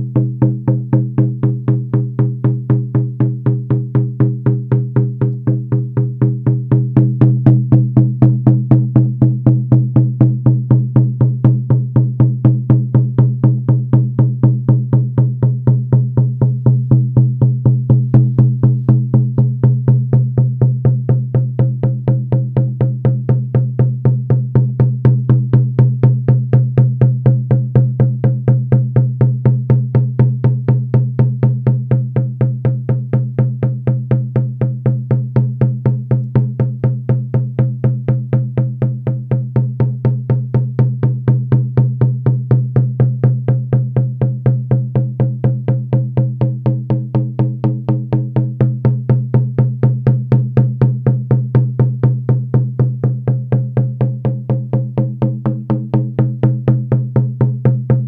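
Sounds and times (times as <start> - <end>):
frame drum steady beat: 0.0 - 31.6.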